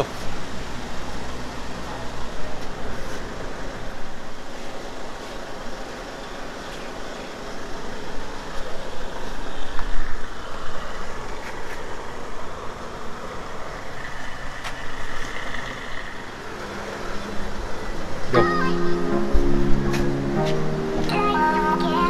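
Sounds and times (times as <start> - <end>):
traffic noise: 0.0 - 22.0
music: 18.3 - 22.0.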